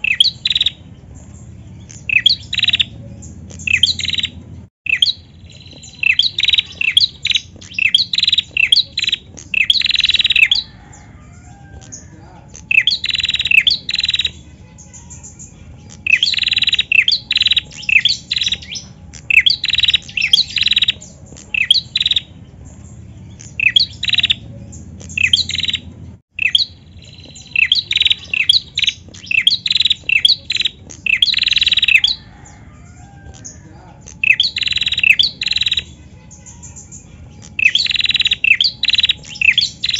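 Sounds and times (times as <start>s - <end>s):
bird singing in sharp high chirps: 0.0s - 39.9s.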